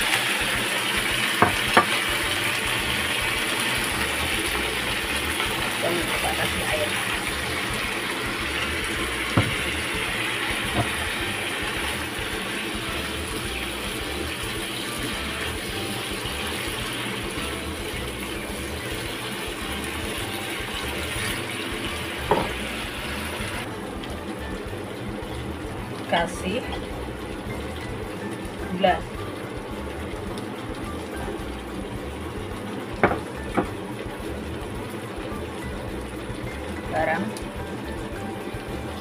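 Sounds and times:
food sizzling in a frying pan: 0:00.0 - 0:39.0
spatula knocking against pan: 0:01.4 - 0:02.1, 0:08.9 - 0:11.4, 0:22.2 - 0:22.7, 0:33.0 - 0:33.8.

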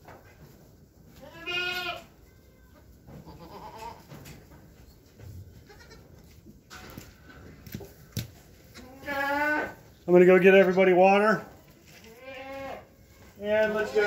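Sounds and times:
goat bleating: 0:01.2 - 0:02.1, 0:03.2 - 0:04.1, 0:05.6 - 0:06.3, 0:08.7 - 0:09.8, 0:12.0 - 0:12.9.

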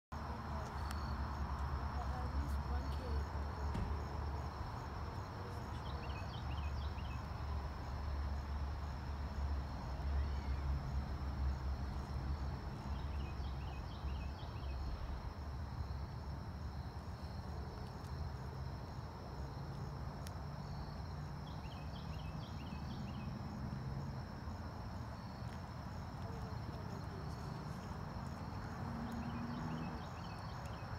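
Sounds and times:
crickets chirping: 0:00.1 - 0:30.9.

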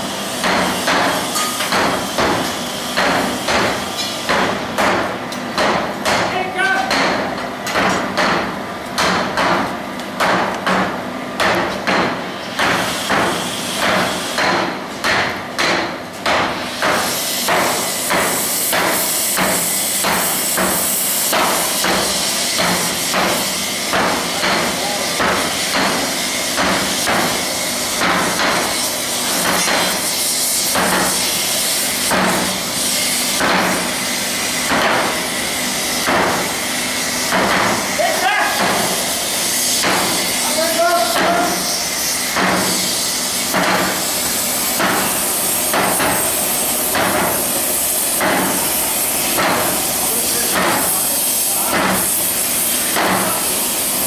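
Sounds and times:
hammers striking hot metal: 0:00.2 - 0:54.0
steady hiss: 0:38.8 - 0:54.0.

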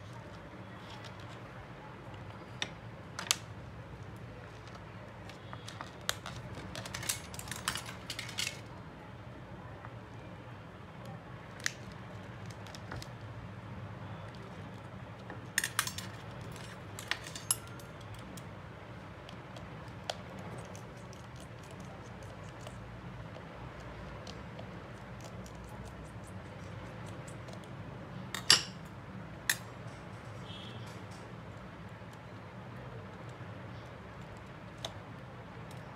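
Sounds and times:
small tools clicking and tapping: 0:15.2 - 0:18.5.

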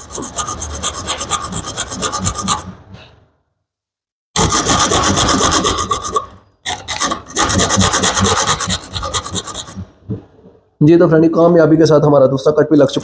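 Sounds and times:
hacksaw blade sawing metal: 0:00.0 - 0:02.8, 0:04.4 - 0:09.9.

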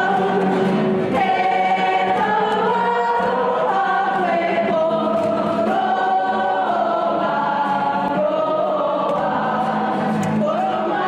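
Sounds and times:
women singing together: 0:00.0 - 0:11.0.

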